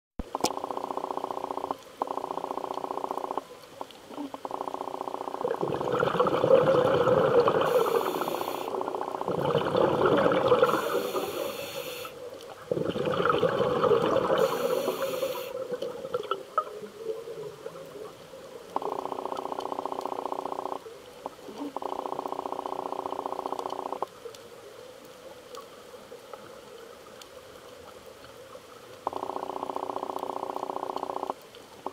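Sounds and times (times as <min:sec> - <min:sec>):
rumbling gush of bubbles: 0:05.4 - 0:11.5, 0:12.6 - 0:18.2
regulator hiss on inhale: 0:07.6 - 0:08.9, 0:10.6 - 0:12.3, 0:14.3 - 0:15.7.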